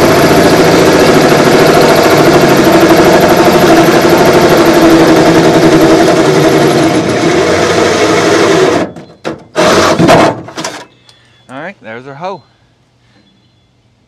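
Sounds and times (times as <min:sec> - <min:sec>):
power drill boring sheet metal: 0:00.0 - 0:10.2.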